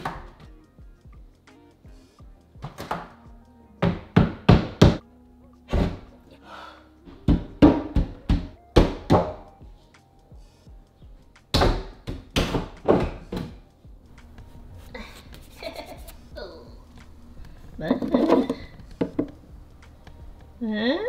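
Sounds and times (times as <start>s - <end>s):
background music: 0.0s - 21.0s
wooden shelves thunking: 5.7s - 6.1s, 7.1s - 9.5s, 11.5s - 13.6s.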